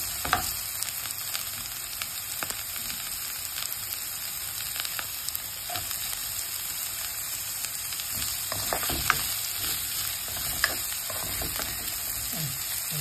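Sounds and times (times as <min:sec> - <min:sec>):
onions sizzling in hot oil: 0:00.0 - 0:13.0
spatula scraping a pan: 0:08.1 - 0:12.9.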